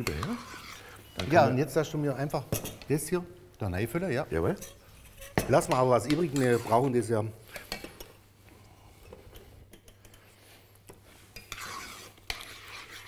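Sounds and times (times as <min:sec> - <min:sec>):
utensil scraping: 0:00.0 - 0:01.0, 0:04.4 - 0:07.8, 0:10.0 - 0:13.0.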